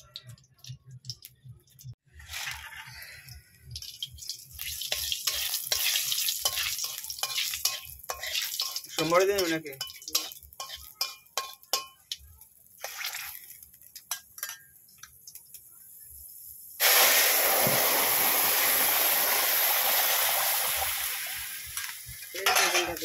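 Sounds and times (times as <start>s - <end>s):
liquid sizzling in hot oil: 0.0s - 23.0s
spatula scraping in pan: 2.1s - 12.2s, 12.8s - 14.6s.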